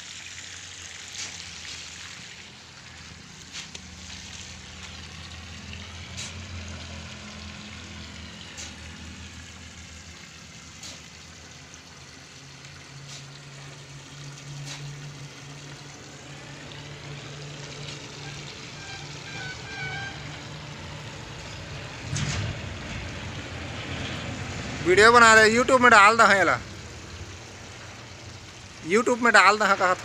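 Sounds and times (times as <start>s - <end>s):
low motor hum: 1.4s - 24.9s.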